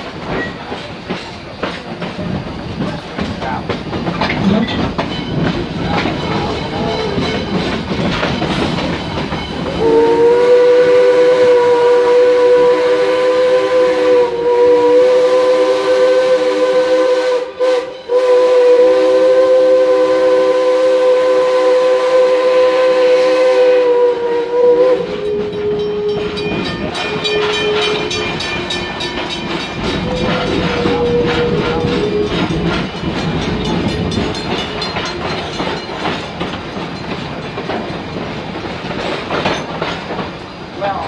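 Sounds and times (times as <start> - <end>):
train clattering on rails: 0.0 - 11.9, 24.6 - 41.0
steam locomotive whistle: 9.6 - 32.9.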